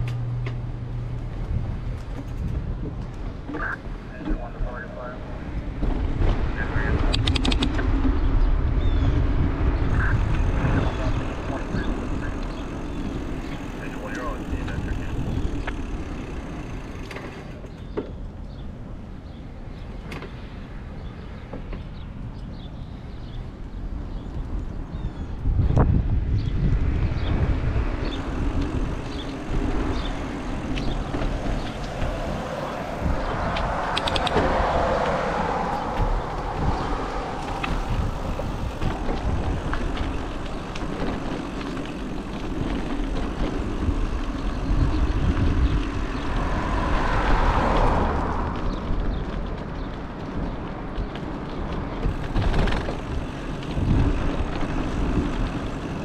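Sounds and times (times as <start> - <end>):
traffic and tyre noise: 0.0 - 56.0
wind rumbling on microphone: 0.0 - 56.0
sharp clicks: 6.9 - 7.8, 33.5 - 35.2.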